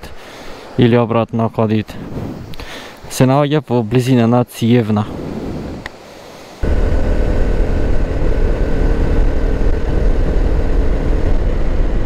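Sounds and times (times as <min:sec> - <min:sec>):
motorcycle engine rumbling: 0:06.6 - 0:12.0.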